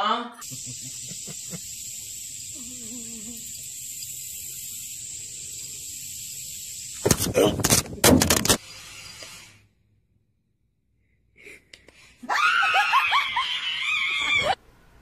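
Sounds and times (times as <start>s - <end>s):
person screaming: 12.3s - 14.6s.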